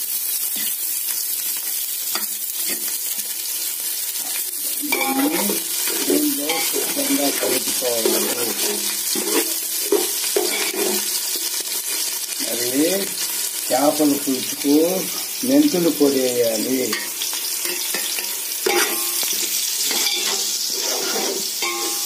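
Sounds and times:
food sizzling in hot oil: 0:00.0 - 0:22.0
metal spoon stirring and clicking: 0:04.2 - 0:11.0, 0:16.9 - 0:22.0.

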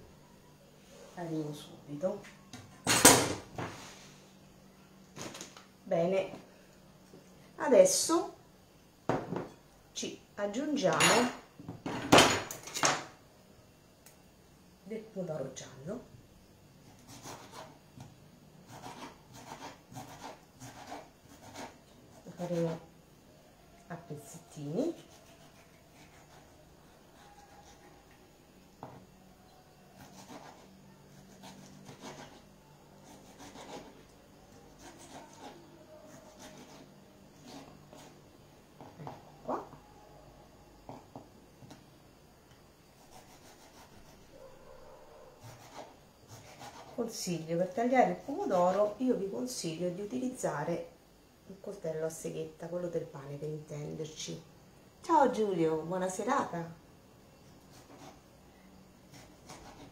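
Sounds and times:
knife slicing tomato: 0:24.9 - 0:28.0, 0:30.0 - 0:32.4, 0:33.0 - 0:38.2, 0:45.4 - 0:47.0, 0:57.7 - 0:58.2, 0:59.1 - 0:59.9.

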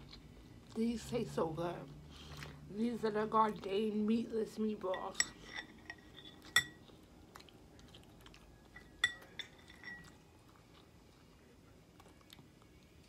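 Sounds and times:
soft chewing: 0:00.0 - 0:13.0
metal fork clinking on glass bowl: 0:04.8 - 0:06.8, 0:08.8 - 0:10.2.

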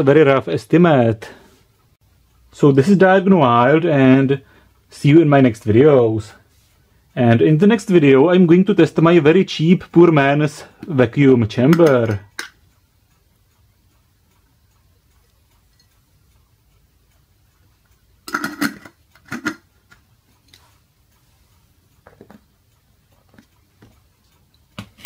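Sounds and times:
metal lid clinking on glass jar: 0:18.3 - 0:19.6.

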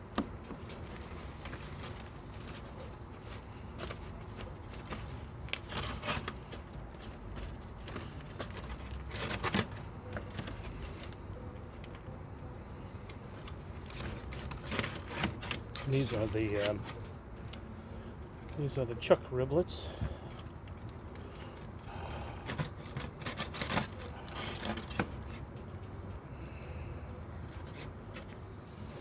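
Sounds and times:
sharp scrapes and crackles: 0:00.6 - 0:11.3, 0:12.6 - 0:17.6, 0:20.2 - 0:25.6, 0:27.4 - 0:29.0
aluminium foil crinkling: 0:00.6 - 0:12.1, 0:12.8 - 0:17.6, 0:20.3 - 0:25.5.

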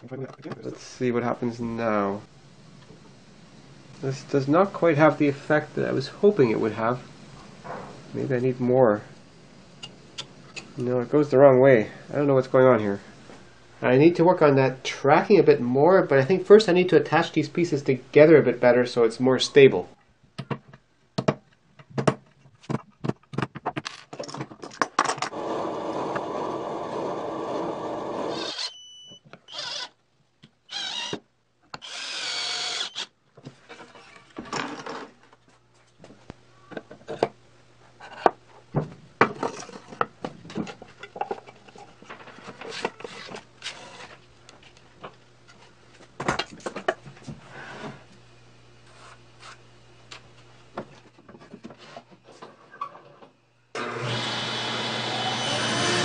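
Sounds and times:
cordless drill driving screws: 0:28.2 - 0:28.8, 0:29.5 - 0:30.0, 0:30.7 - 0:31.2, 0:31.8 - 0:33.1, 0:53.8 - 0:56.0.

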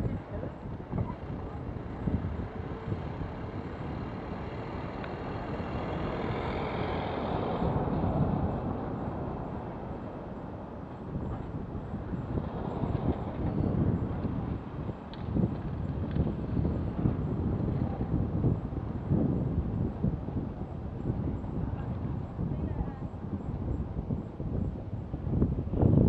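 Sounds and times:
wind: 0:00.0 - 0:26.0
van passing by: 0:02.8 - 0:10.2.

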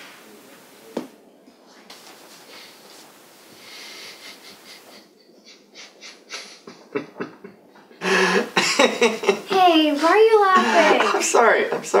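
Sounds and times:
man's stifled laughter: 0:03.8 - 0:09.6, 0:10.5 - 0:11.3.

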